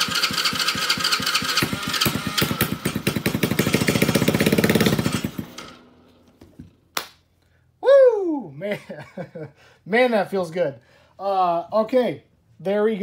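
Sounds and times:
electric starter cranking engine: 0:00.0 - 0:06.2
small engine firing: 0:00.0 - 0:06.7.

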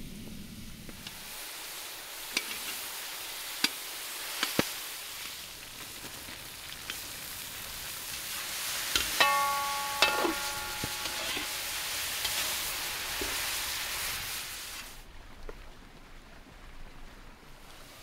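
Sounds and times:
meat sizzling in a pan: 0:01.1 - 0:15.0
metal utensil clanking on pan: 0:08.9 - 0:12.6.

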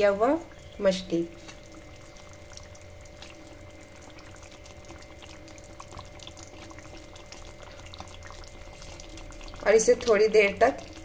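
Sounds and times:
faint popping and crackling: 0:00.0 - 0:11.0
faint steady hum: 0:00.0 - 0:11.0
gravy bubbling in a pan: 0:00.0 - 0:11.0.

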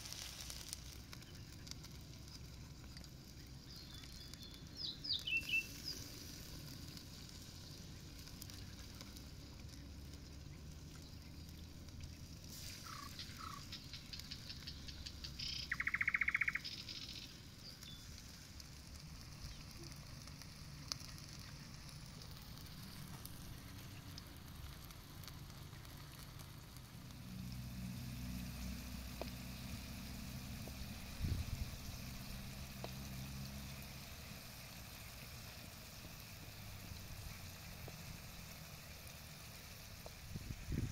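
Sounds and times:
birds chirping: 0:03.6 - 0:06.1, 0:12.7 - 0:18.2
bird rapid trill: 0:12.8 - 0:18.0.

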